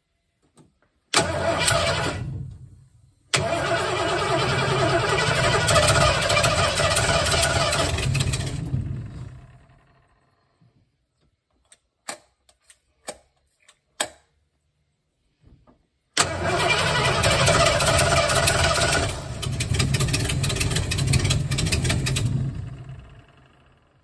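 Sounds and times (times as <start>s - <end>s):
engine cranking by starter: 1.1s - 10.2s, 16.2s - 24.0s.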